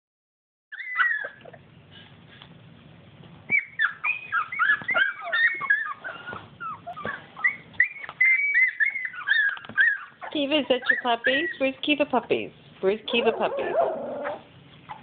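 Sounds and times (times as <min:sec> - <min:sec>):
puppies whimpering and squeaking: 0:00.7 - 0:02.4, 0:03.5 - 0:11.8, 0:13.1 - 0:15.0.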